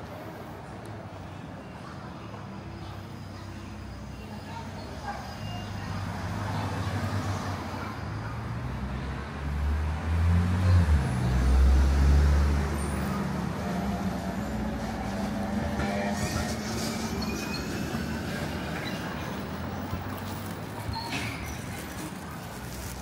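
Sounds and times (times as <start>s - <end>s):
street traffic noise: 0.0s - 23.0s
vehicle engine rumble passing: 5.7s - 23.0s.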